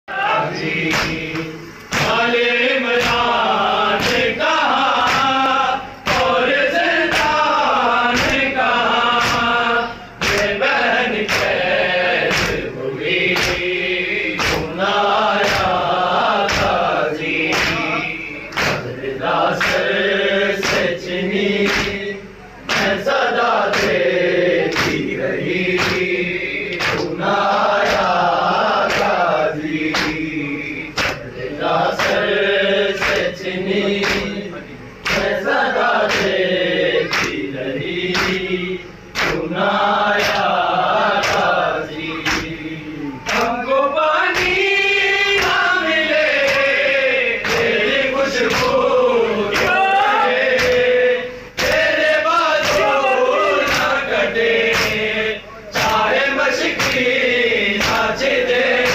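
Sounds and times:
men's chorus singing: 0.1s - 58.9s
hands slapping chests: 0.9s - 2.2s, 5.0s - 5.4s, 10.2s - 10.6s, 11.2s - 11.6s, 12.3s - 12.6s, 13.4s - 13.6s, 14.4s - 14.7s, 16.4s - 16.8s, 17.5s - 17.9s, 18.5s - 18.9s, 20.6s - 20.9s, 21.7s - 22.0s, 25.8s - 26.0s, 26.7s - 27.2s, 31.0s - 31.2s, 33.0s - 33.3s, 34.0s - 34.3s, 35.0s - 35.4s, 37.1s - 37.4s, 38.1s - 38.4s, 39.1s - 39.5s, 42.2s - 42.5s, 48.4s - 48.8s, 49.5s - 49.9s, 50.6s - 50.9s, 51.6s - 51.9s, 52.6s - 53.0s, 53.6s - 54.0s, 54.7s - 55.0s, 56.7s - 57.1s, 57.8s - 58.1s.

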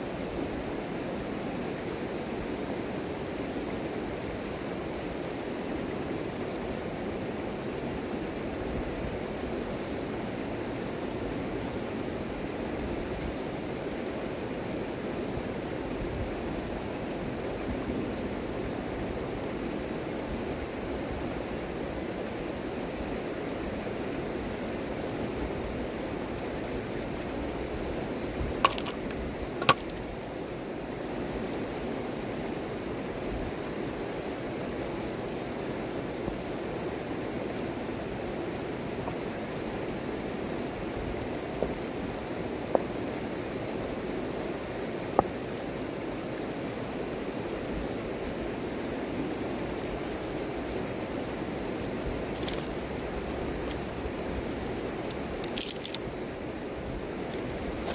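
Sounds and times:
river rushing over gravel: 0.0s - 57.9s
stone knocking against stone: 28.6s - 30.0s.

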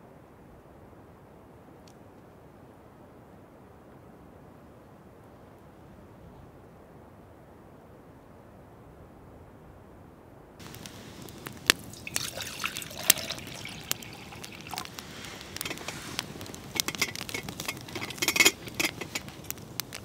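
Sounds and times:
water pouring into metal cup: 10.6s - 19.3s
campfire crackling: 10.6s - 20.0s.

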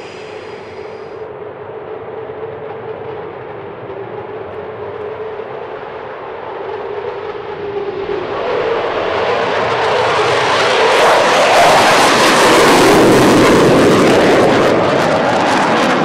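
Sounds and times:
jet engines roaring: 0.0s - 16.0s.

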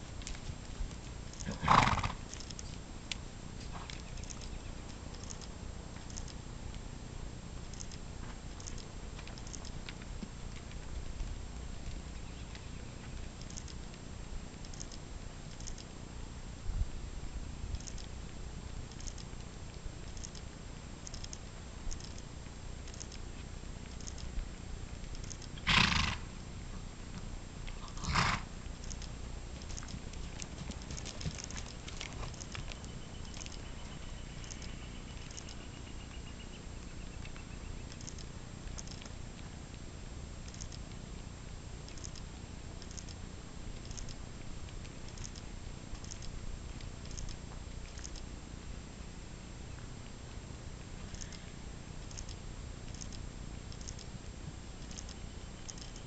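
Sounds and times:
steady low rumble: 0.0s - 56.0s
horse snorting: 1.4s - 2.4s, 25.6s - 26.3s, 27.8s - 28.6s
hoofbeats trotting on sand: 29.5s - 35.5s
faint high chirps: 32.3s - 38.2s, 54.8s - 56.0s.

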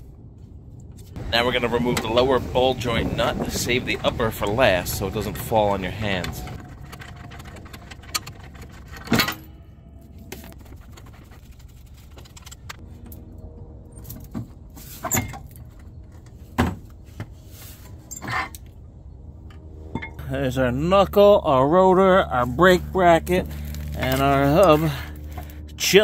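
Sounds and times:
metal clanks and clinks: 6.2s - 10.5s.

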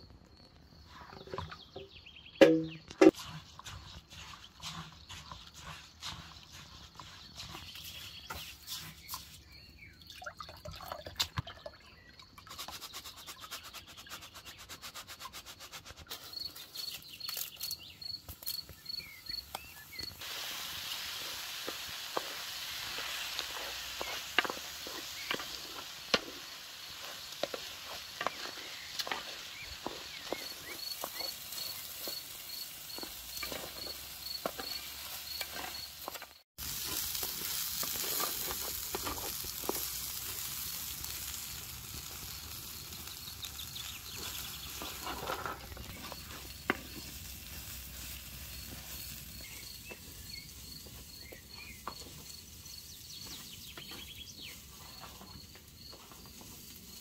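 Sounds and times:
stirring clicks and scrapes: 2.9s - 9.6s, 21.2s - 40.8s, 42.4s - 50.0s
food sizzling in a pan: 18.6s - 57.0s.

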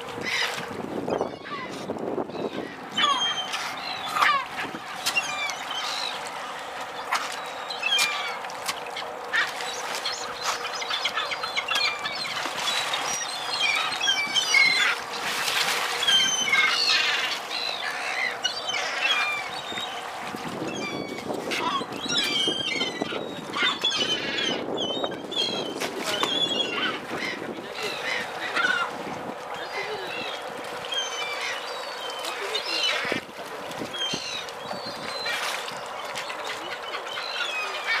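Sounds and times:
gulls calling: 0.0s - 38.0s
sharp splashes: 3.4s - 18.4s.

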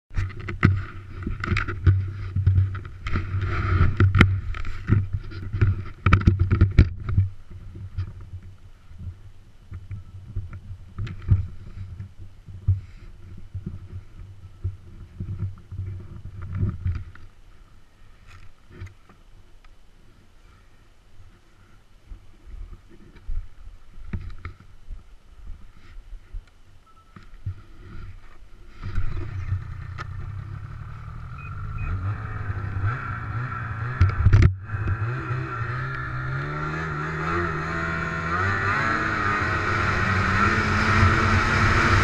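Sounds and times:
muffled low drone: 24.5s - 42.0s.

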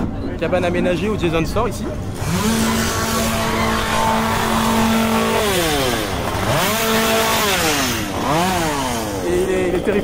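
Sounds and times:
chainsaw engine revving: 2.1s - 9.9s.

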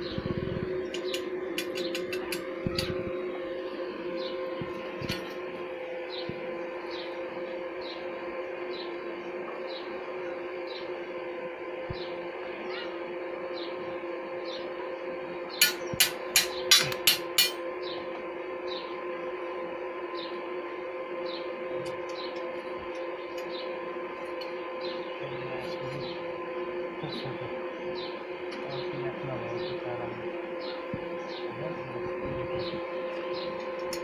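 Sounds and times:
steady hum: 0.0s - 34.0s
hammer striking steel: 15.6s - 17.6s.

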